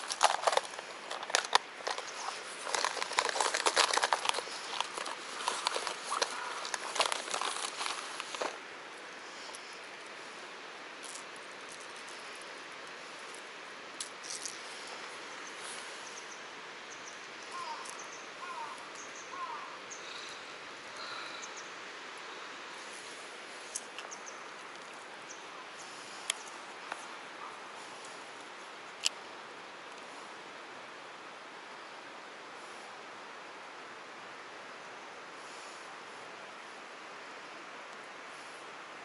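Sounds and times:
outdoor background hiss: 0.0 - 39.0
faint bird-like chirps: 15.3 - 20.4, 21.3 - 21.8.

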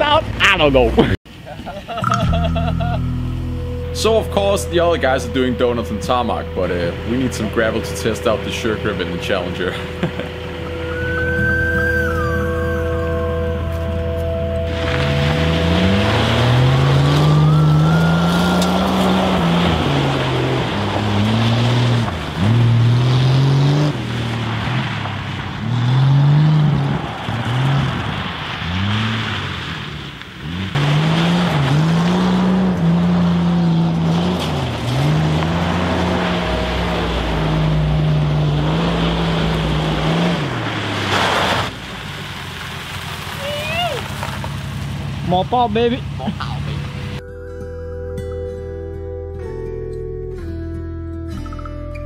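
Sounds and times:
car engine revving: 2.0 - 47.2
tyres spinning on gravel: 14.7 - 23.0, 23.9 - 30.1, 33.9 - 46.2.

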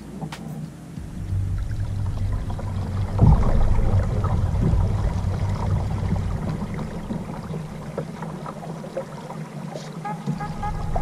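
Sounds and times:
water rushing along hull: 0.0 - 11.0
low motor hum: 1.0 - 9.0, 10.3 - 11.0.

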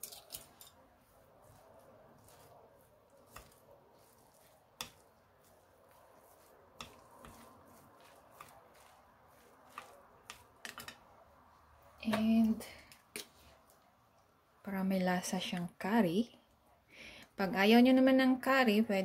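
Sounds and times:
chopsticks stirring vegetables: 0.0 - 14.2.

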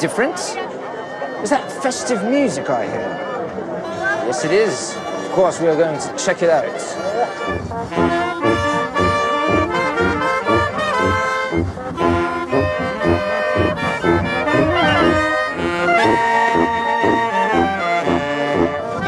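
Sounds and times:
brass band playing festive music: 6.8 - 19.0.

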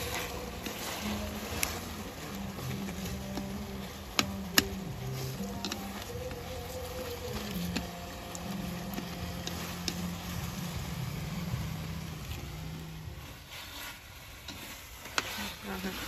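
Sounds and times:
chopsticks clicking against pan: 0.0 - 10.6, 14.4 - 16.0
low hum: 0.0 - 13.5
meat sizzling in a wok: 0.0 - 16.0.

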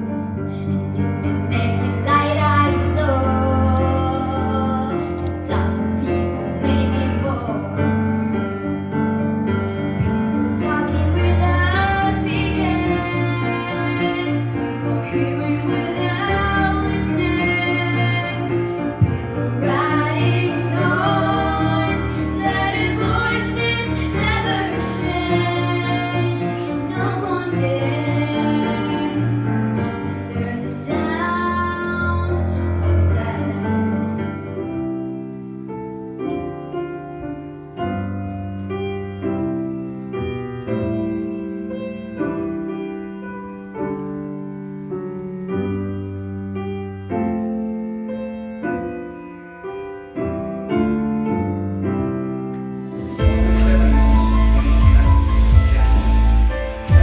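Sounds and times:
amplified instrumental accompaniment: 0.0 - 57.0
girls singing into microphones: 1.3 - 7.7, 9.8 - 34.4.

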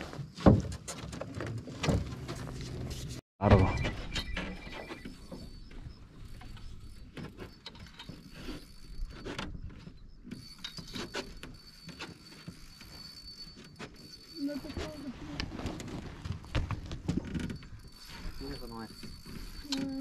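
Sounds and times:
thin high whine: 3.4 - 9.4.

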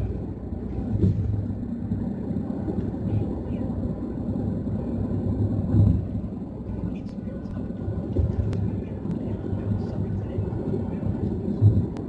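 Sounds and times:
car cabin road noise: 0.0 - 12.0
brief thump: 1.0 - 1.4.

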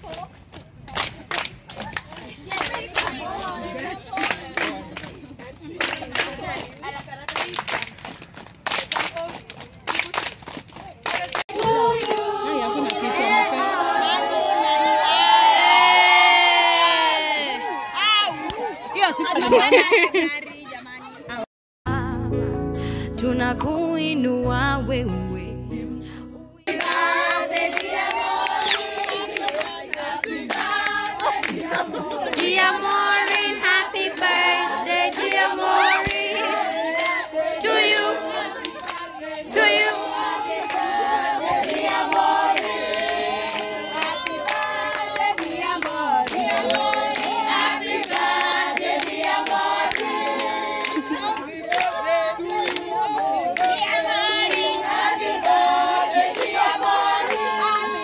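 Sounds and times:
group singing a cappella: 11.5 - 16.6, 26.6 - 58.0
hand clapping: 43.5 - 53.9.

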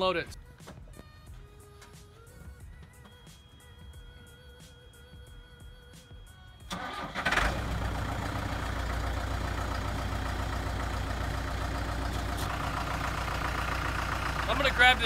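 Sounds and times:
diesel engine starting and idling: 6.7 - 15.0.

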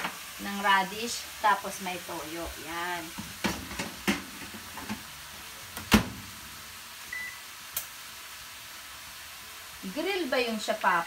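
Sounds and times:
short beep: 7.1 - 7.4.

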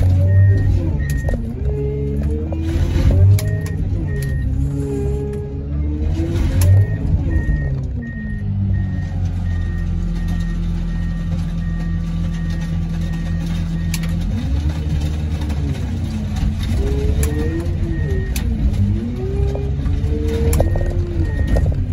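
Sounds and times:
heavy machine engine running: 0.0 - 21.9
reversing alarm beeping: 0.2 - 1.5, 3.2 - 5.1, 6.4 - 14.1, 17.0 - 18.6, 20.4 - 21.8.

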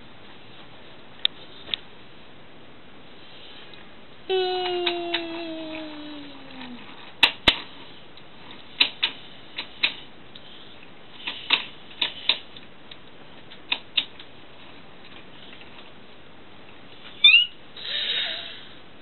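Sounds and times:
sharp clicks in pairs: 11.2 - 14.3.

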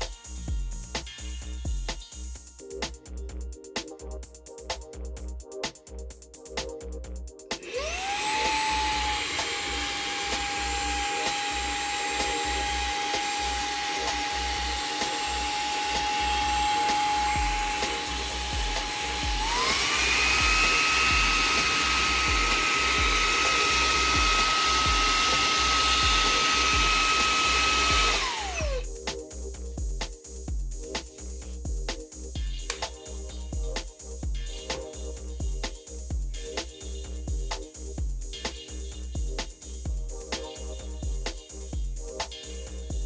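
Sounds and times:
handheld vacuum motor whining: 7.6 - 28.9.

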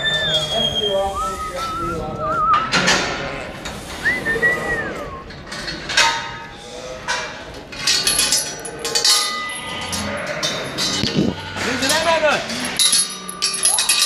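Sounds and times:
metallic clanks and knocks: 5.5 - 6.5, 7.1 - 14.0.

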